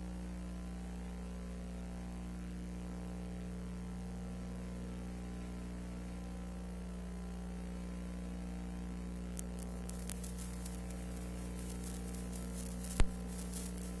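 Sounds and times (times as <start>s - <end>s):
electrical hum with hiss: 0.0s - 14.0s
scattered crackles: 9.0s - 14.0s.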